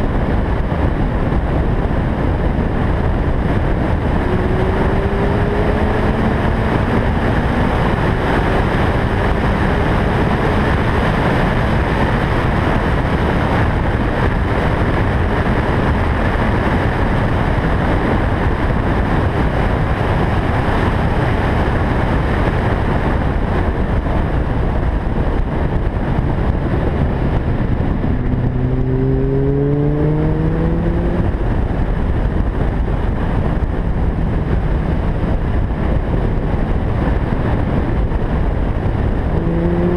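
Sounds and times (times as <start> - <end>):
wind and road noise: 0.0 - 39.9
car engine running: 21.8 - 39.9.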